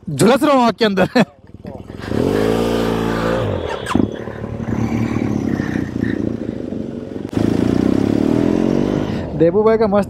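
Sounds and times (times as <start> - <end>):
motorcycle engine running: 1.4 - 9.4.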